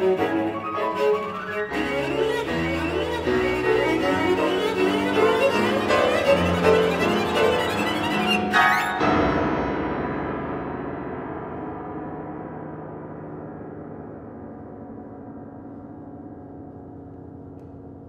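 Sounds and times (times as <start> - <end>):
cello playing: 0.0 - 9.2
piano playing: 0.0 - 18.0
loud ringing piano chord: 5.4 - 18.0.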